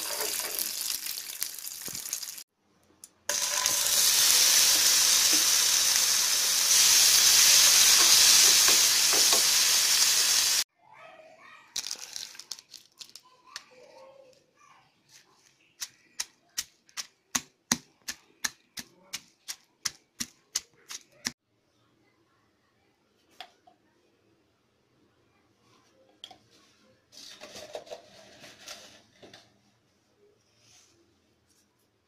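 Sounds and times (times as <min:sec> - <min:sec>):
tomato sizzling in hot oil: 0:00.0 - 0:02.4, 0:03.3 - 0:10.7.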